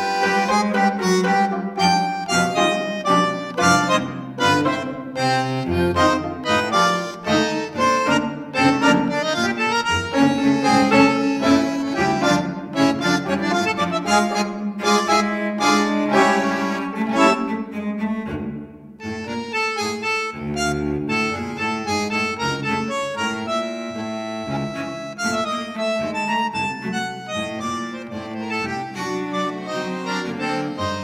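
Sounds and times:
instrumental background music: 0.0 - 31.0.

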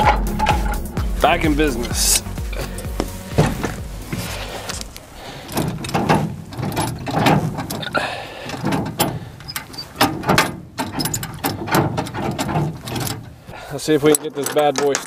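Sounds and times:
gear shift lever clunking: 1.8 - 15.0.

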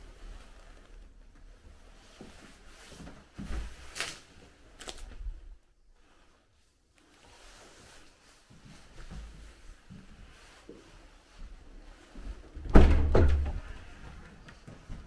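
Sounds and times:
dull thuds: 12.6 - 13.7
footsteps and scuffing: 13.6 - 15.0.

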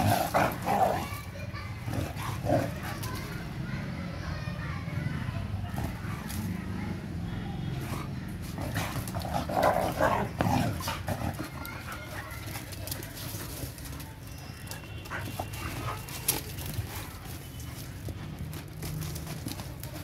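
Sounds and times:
paws thudding on sandy ground: 7.9 - 20.0.

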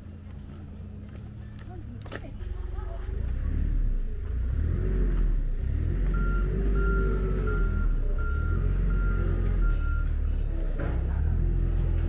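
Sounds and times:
engine low rumble: 0.0 - 12.0
reversing alarm beeps: 6.1 - 10.1.

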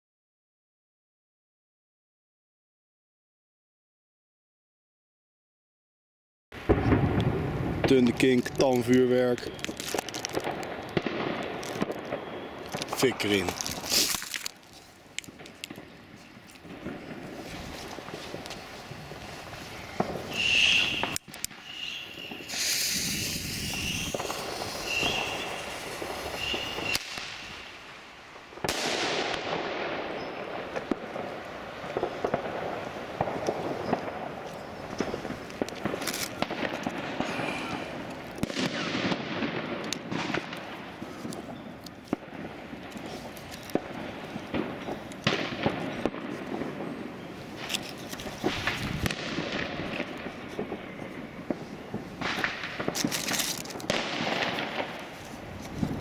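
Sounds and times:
firework fizzing: 6.6 - 41.6, 42.2 - 56.0
firework crackling and popping: 6.6 - 56.0
high whistles: 12.0 - 12.7, 19.6 - 27.8.

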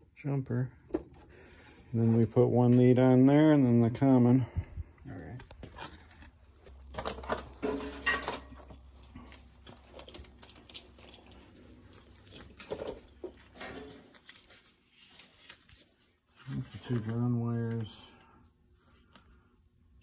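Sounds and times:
plastic packaging rustling: 5.7 - 18.1.

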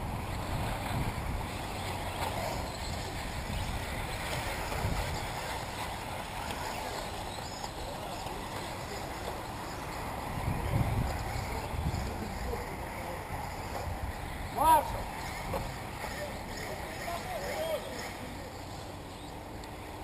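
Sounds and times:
wind rumble on microphone: 0.0 - 6.5, 9.8 - 16.0.

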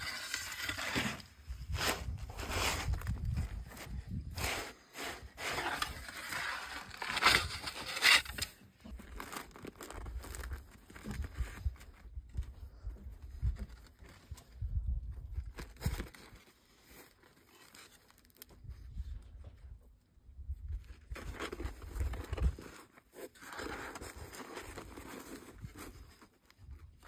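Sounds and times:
bread crust tearing and crackling: 7.1 - 12.0.

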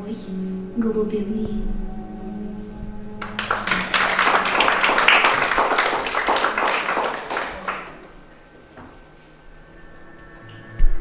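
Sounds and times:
audience applauding: 3.2 - 8.2.

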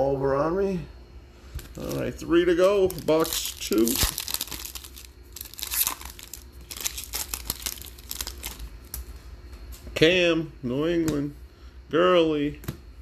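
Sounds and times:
foil wrapper tearing and crinkling: 1.7 - 9.1.

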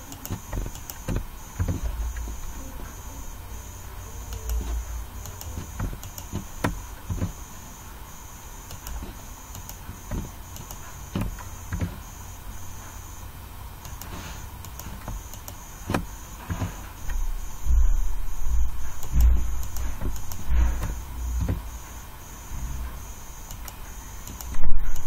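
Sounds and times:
electrical hum: 0.0 - 25.0
faint pulsing high tone: 0.0 - 25.0
computer mouse clicks: 0.1 - 3.0, 4.3 - 7.4, 8.7 - 12.0, 13.8 - 17.1, 18.9 - 21.6, 23.4 - 25.0.

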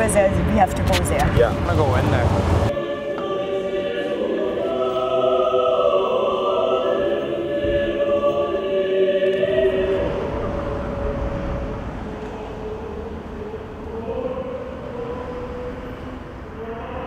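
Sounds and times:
low rumbling noise: 0.0 - 2.8, 9.3 - 17.0
choir singing held chords: 1.5 - 17.0.

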